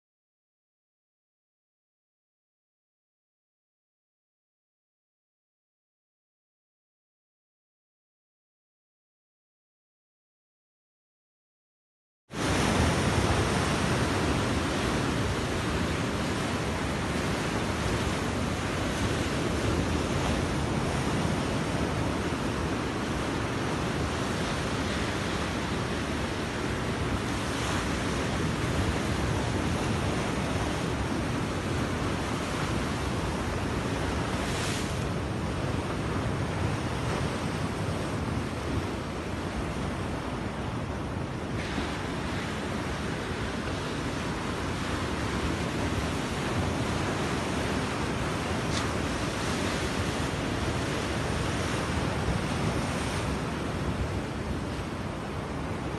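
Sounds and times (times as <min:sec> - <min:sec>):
wind buffeting microphone: 0:12.4 - 0:55.9.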